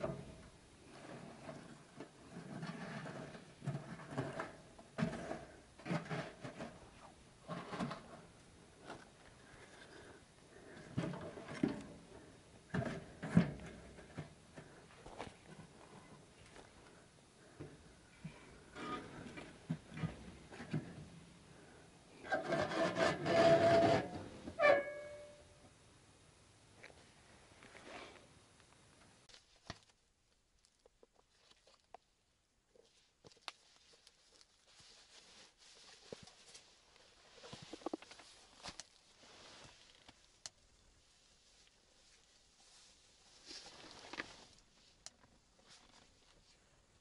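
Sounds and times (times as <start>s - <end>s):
knocks and scrapes of metal stove: 0.0s - 8.3s, 12.7s - 14.8s, 22.2s - 25.3s.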